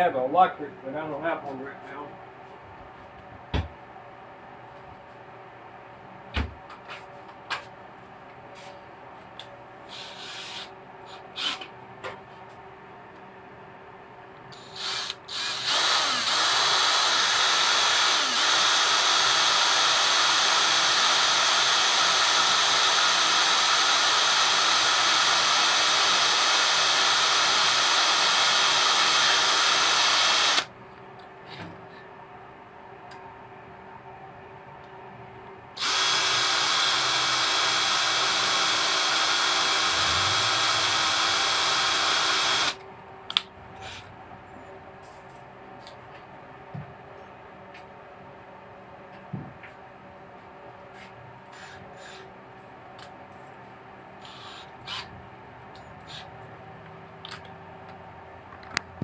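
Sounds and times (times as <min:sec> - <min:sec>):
cordless drill boring into metal: 0:09.9 - 0:10.7, 0:14.6 - 0:30.7, 0:35.8 - 0:42.8, 0:54.2 - 0:55.1.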